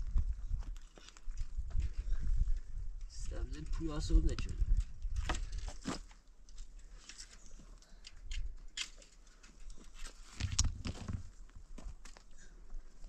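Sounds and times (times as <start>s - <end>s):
stones scraping and knocking on wire: 4.7s - 11.4s
footfalls on stony ground: 8.8s - 12.4s.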